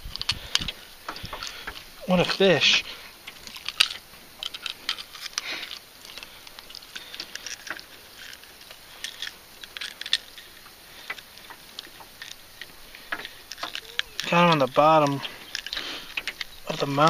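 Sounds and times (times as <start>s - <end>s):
landing net rustling: 0.0s - 17.0s
fishing lure hooks clicking: 3.4s - 17.0s.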